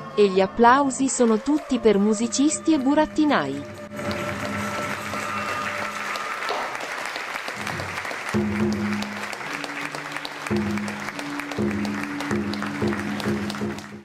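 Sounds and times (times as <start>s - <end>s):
music with held notes: 2.0s - 7.0s, 7.6s - 14.0s
audience applauding: 3.9s - 14.0s.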